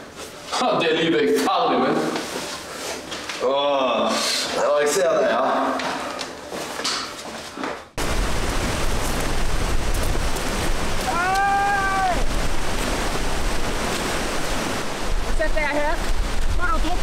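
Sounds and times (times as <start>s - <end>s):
wind and surf rushing: 8.0s - 17.0s
wind rumble on microphone: 8.0s - 17.0s.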